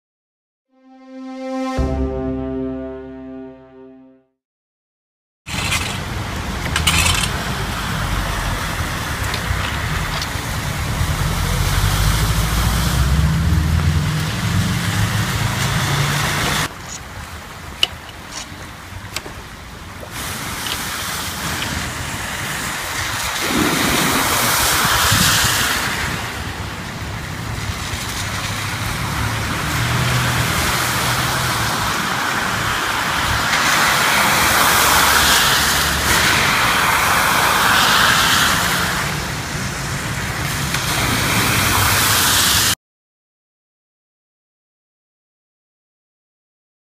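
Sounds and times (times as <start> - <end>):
heavy rain: 6.0 - 17.8, 18.6 - 42.8
tyres splashing through water: 6.9 - 31.8
cars passing: 10.0 - 16.7, 28.4 - 42.8.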